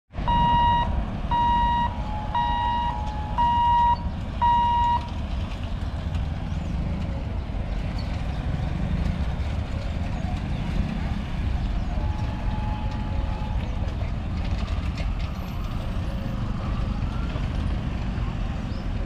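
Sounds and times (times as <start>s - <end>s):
low rumble of idling vehicles: 0.2s - 19.0s
warning buzzer beeping: 0.3s - 5.0s.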